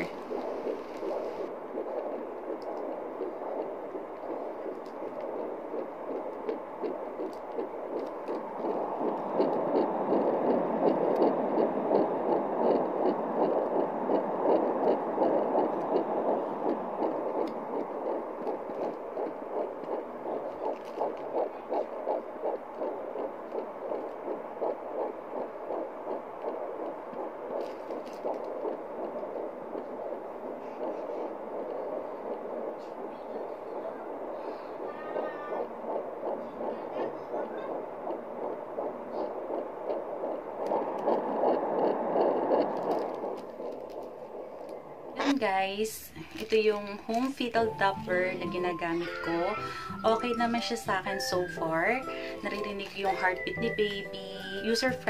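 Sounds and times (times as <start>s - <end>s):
fetal heartbeat pulsing from speaker: 0.0s - 55.0s.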